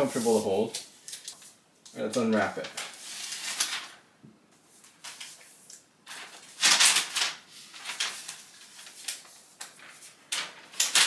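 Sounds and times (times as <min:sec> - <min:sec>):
papery wrap rustling: 0:00.0 - 0:04.0, 0:04.8 - 0:11.0.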